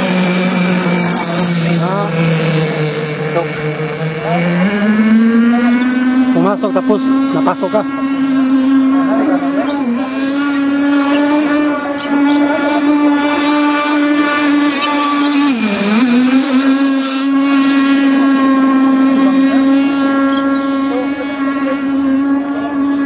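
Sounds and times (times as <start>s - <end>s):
model boat engine buzzing: 0.0s - 23.0s.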